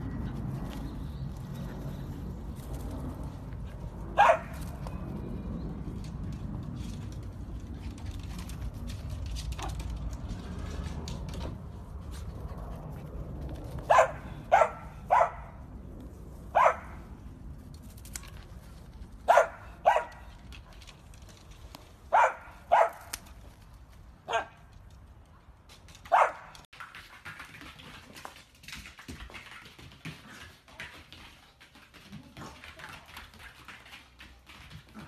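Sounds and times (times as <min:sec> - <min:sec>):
dog barking: 0:04.2 - 0:04.6, 0:13.9 - 0:15.6, 0:16.5 - 0:17.0, 0:19.3 - 0:20.3, 0:22.1 - 0:23.1, 0:24.3 - 0:24.6, 0:26.1 - 0:26.5.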